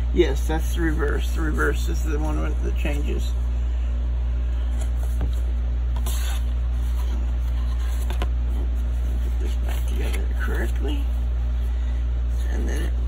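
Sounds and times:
steady low hum: 0.0s - 13.0s
cardboard rustling: 4.6s - 11.3s.

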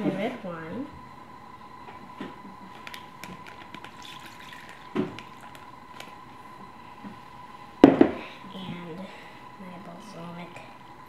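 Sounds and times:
wine trickling into bag: 3.6s - 5.7s.

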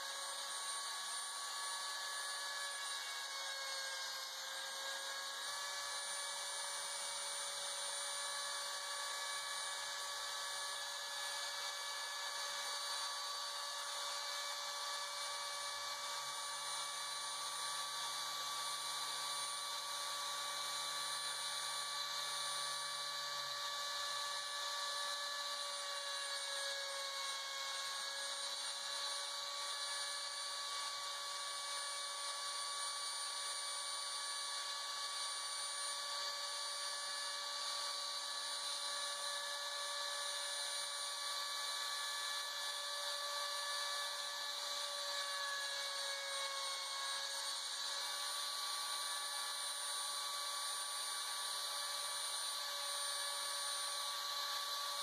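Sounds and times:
spindle motor whine: 0.0s - 55.0s.

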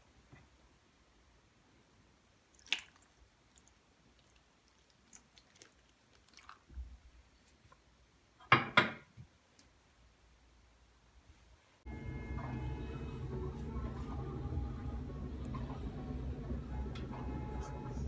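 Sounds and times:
water splashes and drips: 2.5s - 7.0s.

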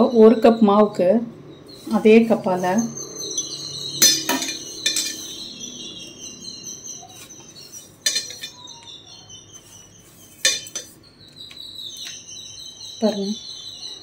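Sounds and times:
faint high chirping: 0.0s - 14.0s
steel cup clinking on steel plate: 4.0s - 5.3s, 8.0s - 8.6s, 10.4s - 11.0s.

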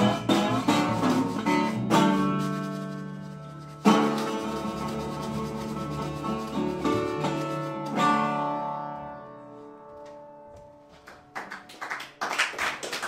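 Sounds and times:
audience clapping: 10.9s - 13.0s.

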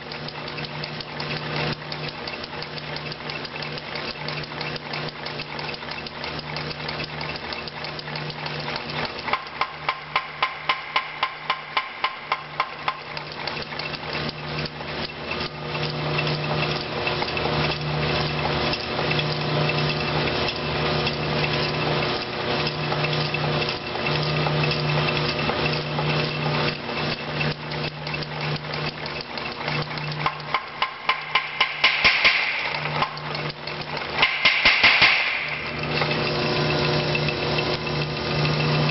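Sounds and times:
power hammer blows: 34.2s - 35.6s.

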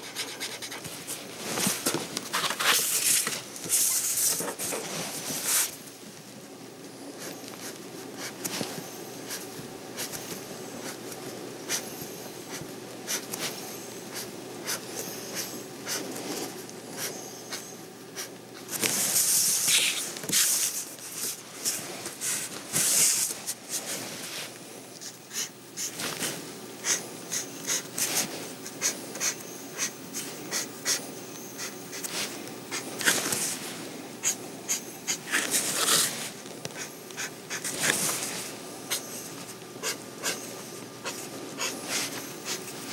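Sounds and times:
pen scratching on paper: 0.0s - 0.8s, 26.8s - 31.0s, 34.2s - 36.1s, 36.8s - 38.0s, 39.8s - 40.4s, 41.0s - 42.7s
steady low hum: 0.0s - 42.9s.

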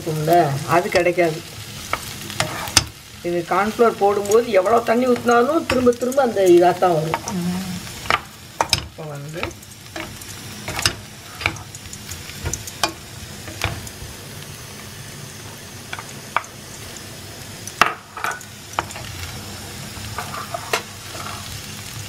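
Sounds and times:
sizzling in a frying pan: 0.0s - 22.0s
spatula knocking and scraping pan: 1.8s - 3.0s, 8.0s - 13.9s, 20.1s - 21.5s.

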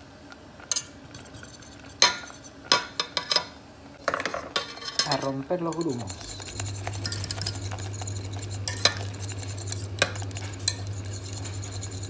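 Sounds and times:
low steady hum: 0.0s - 12.0s
whisk scraping in saucepan: 0.7s - 2.6s, 4.6s - 12.0s
whisk clinking against pan: 4.6s - 12.0s.

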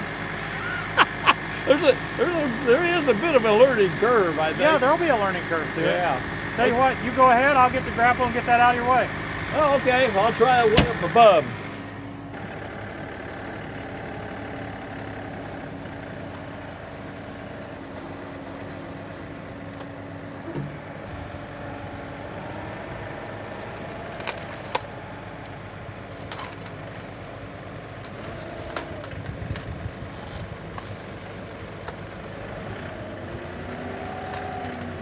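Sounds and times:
tractor diesel engine running: 0.0s - 35.0s
pole chainsaw cutting limbs: 12.4s - 35.0s
wood cracking and snapping: 22.1s - 32.5s, 33.2s - 35.0s.

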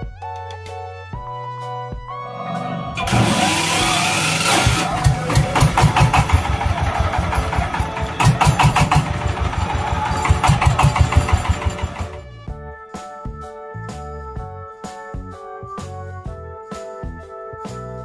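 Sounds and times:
loud hiss: 3.0s - 6.7s
diesel tiller engine thudding: 3.0s - 12.3s.

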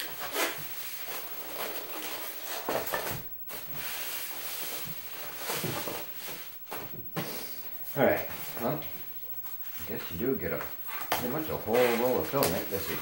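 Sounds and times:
foam trays scraping: 0.0s - 7.6s, 10.9s - 13.0s.

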